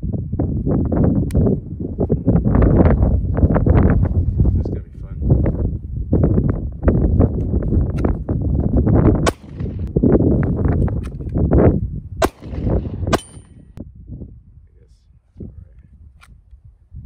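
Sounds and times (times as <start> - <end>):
wind buffeting microphone: 0.0 - 17.0
gunshots: 9.2 - 9.9, 12.2 - 13.6.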